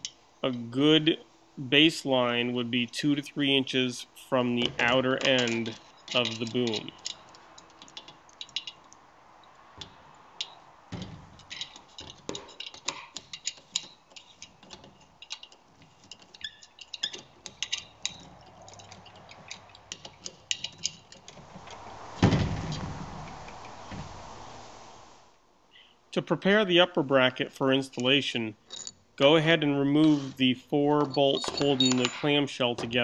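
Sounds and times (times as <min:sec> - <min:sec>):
ratcheting driver clicking: 0:09.8 - 0:21.5.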